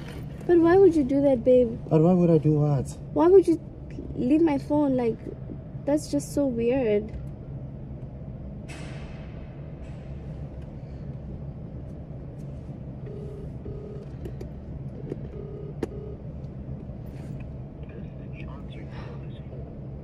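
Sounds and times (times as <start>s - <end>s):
car cabin hum: 0.0s - 8.7s, 9.3s - 20.0s
phone ringback tone: 13.0s - 14.2s, 15.2s - 16.2s.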